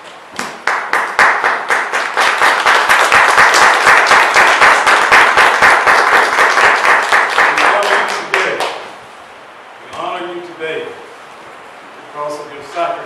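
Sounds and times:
close hands clapping: 0.4 - 8.9
small crowd clapping: 0.4 - 9.0.

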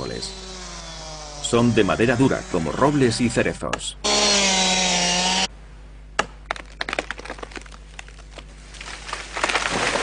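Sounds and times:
chainsaw: 0.0 - 3.3, 4.0 - 5.5
tree snapping and falling: 6.2 - 10.0
wood cracking: 6.2 - 10.0.

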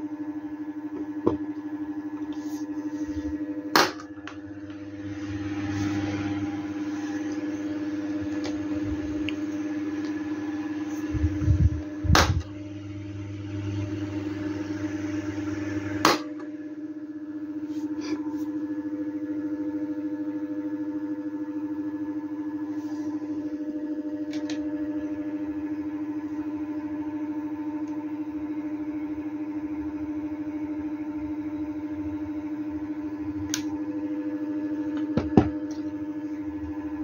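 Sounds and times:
electric fan humming: 0.0 - 37.0
low rumble: 10.2 - 12.5
fan switch clicks: 33.4 - 33.8.

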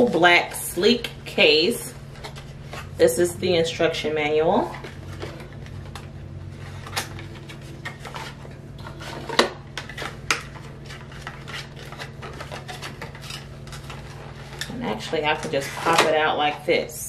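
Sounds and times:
cardboard and paper rustling: 0.0 - 1.0, 1.6 - 3.2, 4.4 - 16.2.

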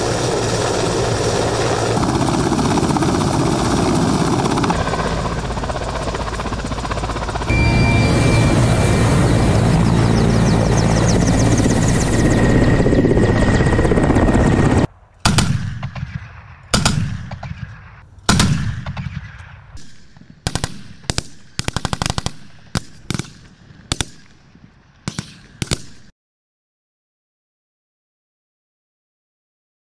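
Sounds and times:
helicopter flying overhead: 0.0 - 15.2
rifle shots: 15.2 - 26.1
machine-gun bursts: 20.5 - 22.4.

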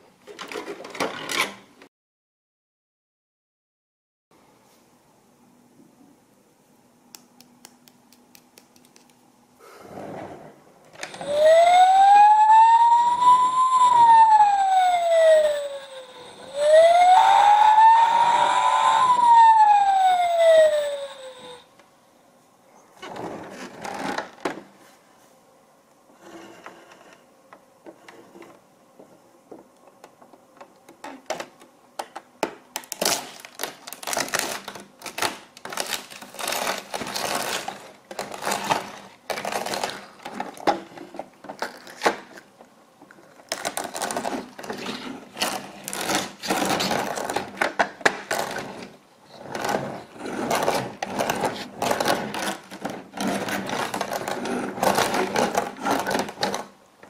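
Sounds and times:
plastic toy wheels clattering: 32.8 - 42.4, 49.5 - 56.7.

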